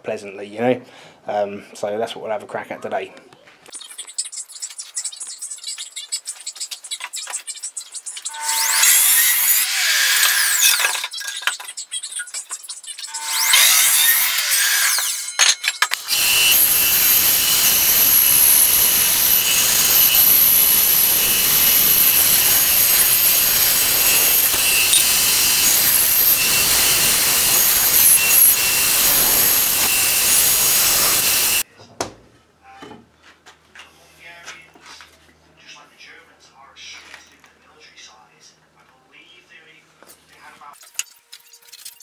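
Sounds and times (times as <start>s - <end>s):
bandsaw cutting wood: 8.3s - 11.1s, 13.1s - 31.6s.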